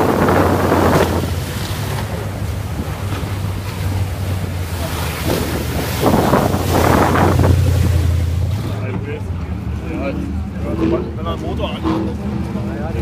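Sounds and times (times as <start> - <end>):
wind buffeting microphone: 0.0 - 8.8
powerboat engines running: 0.0 - 13.0
speedboat passing: 0.0 - 13.0
waves: 0.0 - 13.0.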